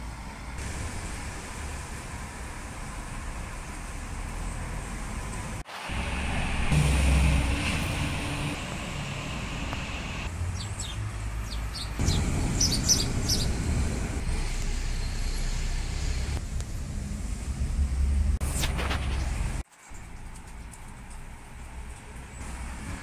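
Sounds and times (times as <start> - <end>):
distant road traffic rumble: 0.0 - 23.0
small bird chirping: 10.5 - 13.6.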